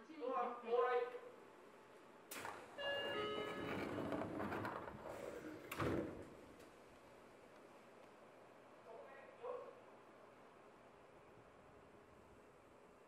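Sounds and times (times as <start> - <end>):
doors closing thud: 2.3 - 6.6
train doors sliding: 2.4 - 6.8
door chime ringing tones: 2.8 - 4.3.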